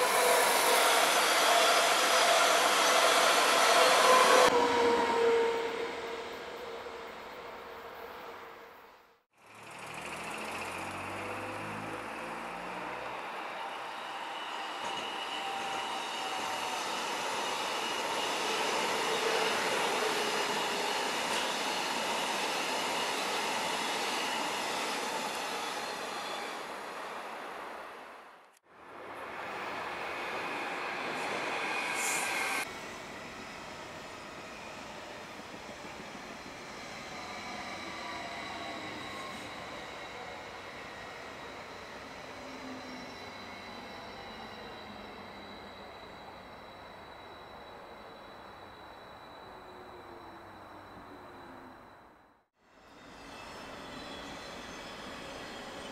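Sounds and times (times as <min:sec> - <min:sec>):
electric train passing: 0:00.0 - 0:08.4, 0:09.4 - 0:28.2, 0:28.8 - 0:55.9
high whine of train: 0:00.0 - 0:55.9
faint high whining tones: 0:30.5 - 0:55.9.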